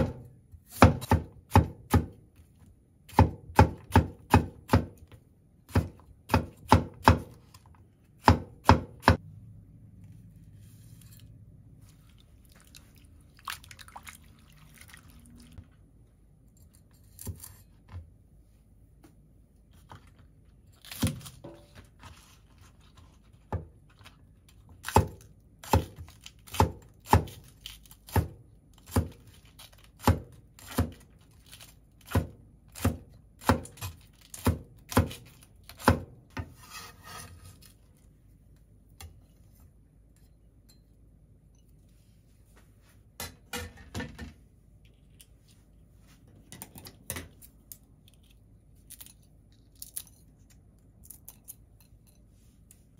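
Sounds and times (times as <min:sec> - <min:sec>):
knife chopping on wooden board: 0:00.0 - 0:02.2, 0:03.1 - 0:07.5, 0:08.2 - 0:09.2, 0:24.8 - 0:27.5
faint handling sounds: 0:36.4 - 0:43.2, 0:44.5 - 0:46.5.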